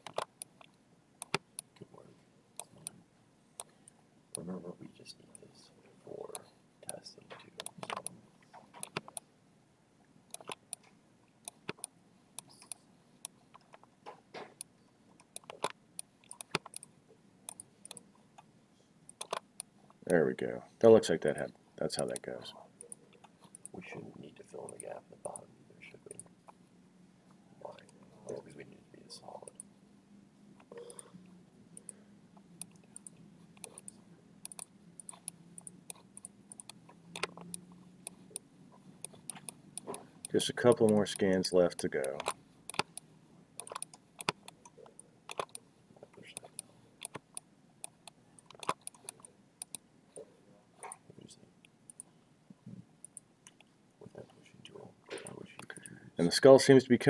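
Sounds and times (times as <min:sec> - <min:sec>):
computer mouse clicks: 0:00.0 - 0:01.8, 0:07.6 - 0:08.1, 0:08.7 - 0:09.2, 0:10.3 - 0:13.8, 0:14.6 - 0:16.9, 0:17.5 - 0:18.1, 0:19.1 - 0:20.2, 0:29.4 - 0:29.7, 0:31.7 - 0:38.4, 0:39.0 - 0:45.6, 0:46.3 - 0:49.8, 0:51.9 - 0:52.1
faint steady hum: 0:00.0 - 0:57.0.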